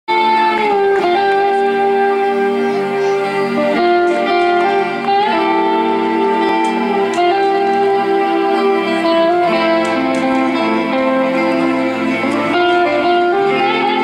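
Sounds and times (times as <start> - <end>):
electric guitar sustained bending notes: 0.1 - 14.0
live rock band playing: 0.1 - 14.0.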